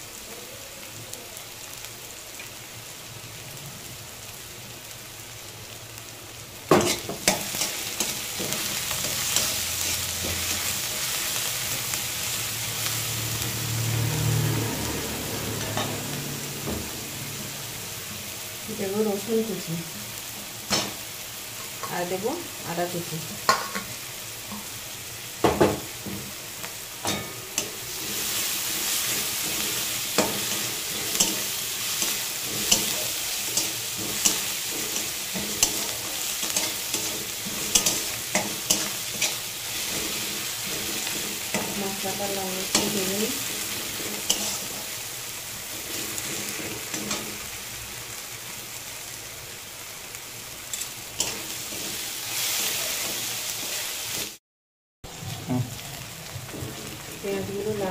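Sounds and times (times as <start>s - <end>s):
vegetables sizzling in hot oil: 0.0s - 54.4s, 55.1s - 57.9s
metal spatula scraping and knocking pan: 43.9s - 44.8s.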